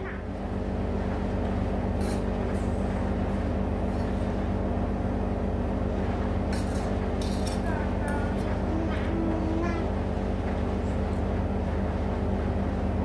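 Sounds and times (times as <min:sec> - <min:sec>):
fan motor humming: 0:00.0 - 0:13.0.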